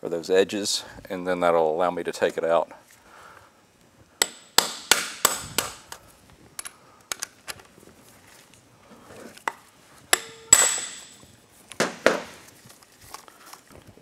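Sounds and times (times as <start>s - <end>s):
hammer striking steel socket: 10.1s - 11.2s.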